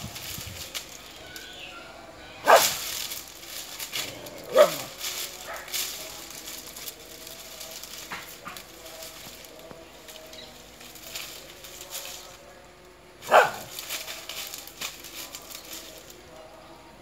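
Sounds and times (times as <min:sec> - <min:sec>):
dry fronds crackling under steps: 0:00.0 - 0:17.0
dog bark: 0:02.4 - 0:02.8, 0:04.5 - 0:04.9, 0:13.2 - 0:13.8.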